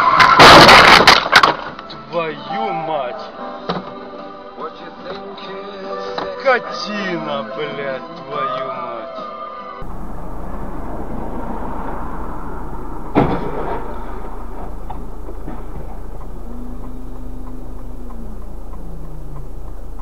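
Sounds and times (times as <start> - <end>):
car road and engine noise: 9.8 - 20.0
faint low falling tone: 9.8 - 20.0
sharp knock: 13.0 - 16.1.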